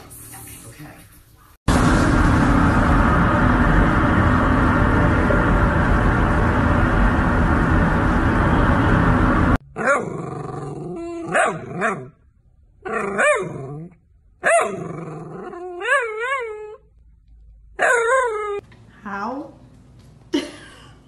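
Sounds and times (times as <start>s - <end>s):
loud steady noise: 1.7s - 9.6s.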